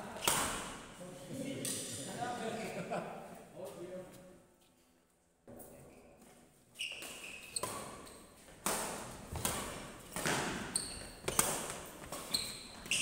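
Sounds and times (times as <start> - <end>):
shoes squeaking on court: 6.7 - 8.6, 9.2 - 13.0
rackets hitting shuttlecock: 6.9 - 13.0.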